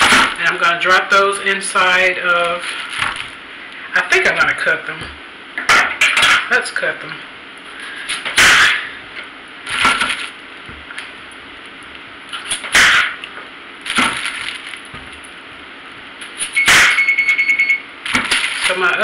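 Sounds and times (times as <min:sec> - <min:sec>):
high electronic oven beep: 0:16.5 - 0:17.9.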